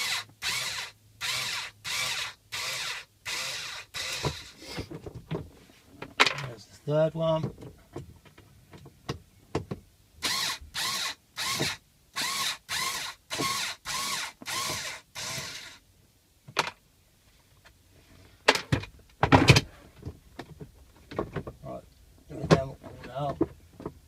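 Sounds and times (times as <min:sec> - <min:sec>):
electric screwdriver whirring: 0:00.0 - 0:04.6, 0:10.2 - 0:15.8.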